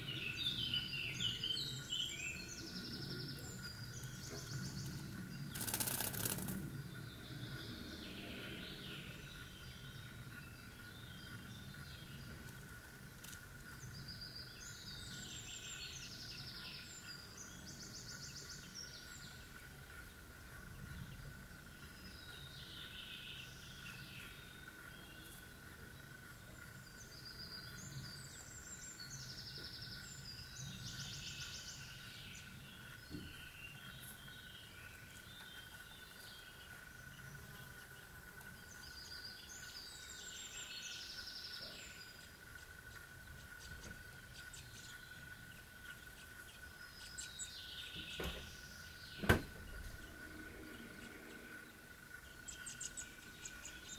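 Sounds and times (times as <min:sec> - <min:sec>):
faint steady whine: 0:00.0 - 0:53.9
songbird singing: 0:00.0 - 0:53.9
low rumble: 0:49.4 - 0:53.9.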